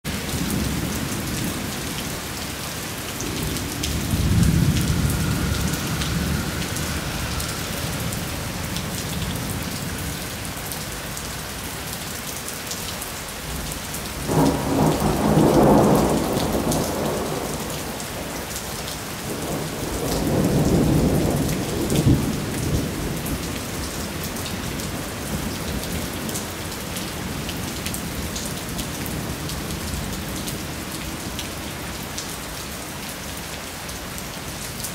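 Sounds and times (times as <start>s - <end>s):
rain on wet street: 0.0s - 34.9s
thunder rolling: 3.2s - 10.6s, 14.2s - 18.2s.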